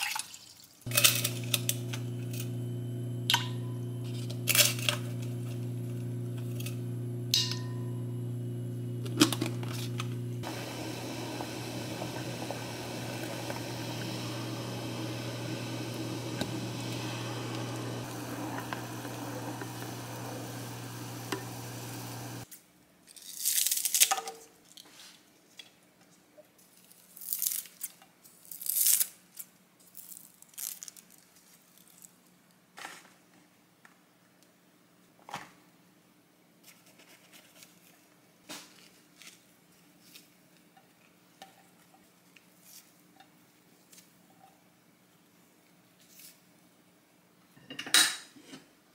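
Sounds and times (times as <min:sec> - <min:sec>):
electric hum: 0:00.9 - 0:22.4
pot bubbling: 0:00.9 - 0:22.4.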